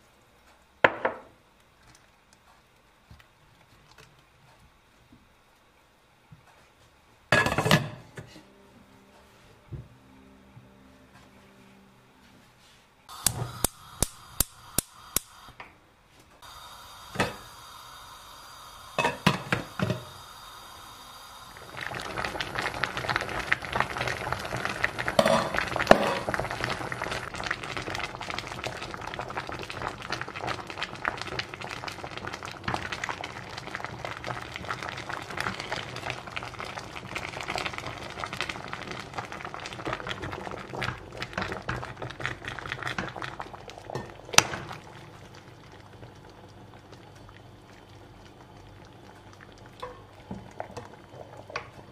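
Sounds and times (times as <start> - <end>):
water boiling and bubbling: 13.1 - 15.6, 16.4 - 51.9.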